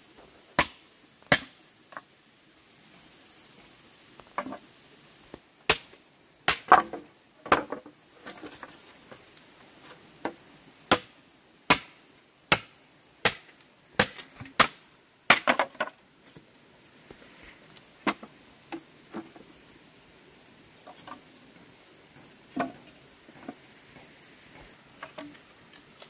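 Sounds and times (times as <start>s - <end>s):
machete chopping bamboo: 0.6s - 1.6s, 5.7s - 7.6s, 10.9s - 15.8s.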